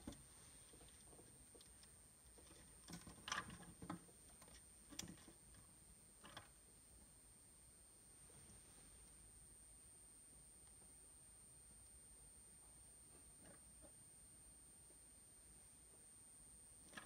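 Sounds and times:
faint clicks and rustles: 0.0 - 6.6.

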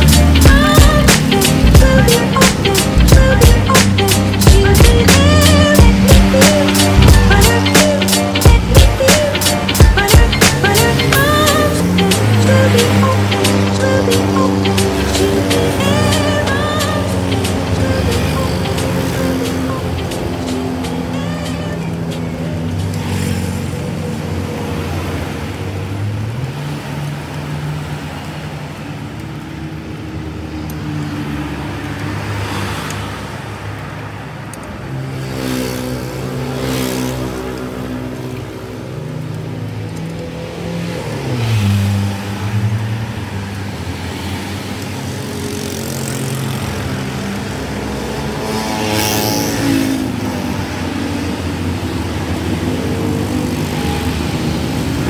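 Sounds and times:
vehicle engine running: 0.0 - 24.3.

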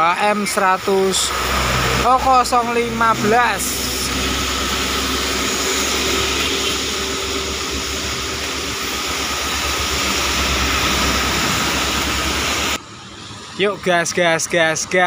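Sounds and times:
bus diesel engine throbbing: 0.0 - 15.0
rain falling: 1.1 - 12.8.

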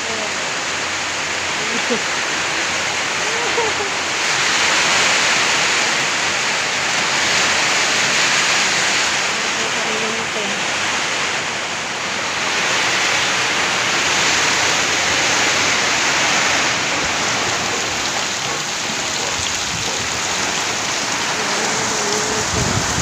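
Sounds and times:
heavy rain pouring: 0.0 - 23.0.

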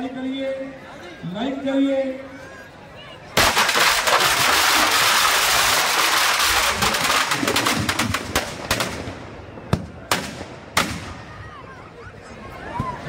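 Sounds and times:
firecrackers crackling and banging: 3.4 - 11.3.

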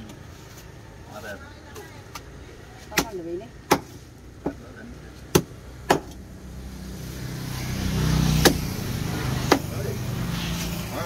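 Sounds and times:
passing vehicle engine: 4.7 - 11.0.

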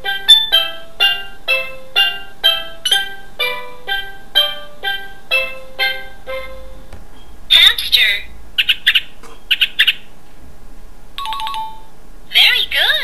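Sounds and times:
electronic plucked melody: 0.0 - 6.9.

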